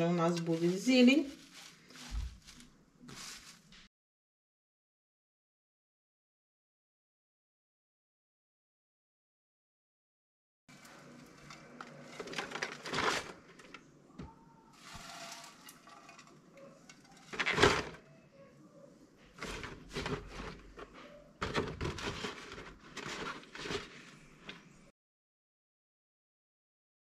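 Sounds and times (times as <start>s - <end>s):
salad leaves rustling: 0.0s - 3.9s, 14.8s - 16.3s.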